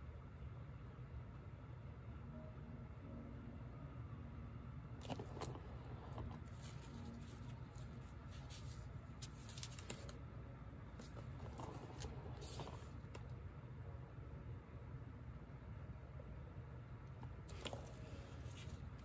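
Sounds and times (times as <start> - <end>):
low steady hum: 0.0 - 19.0
faint handling rustles and clicks: 5.0 - 10.2, 11.0 - 13.4, 17.1 - 19.0.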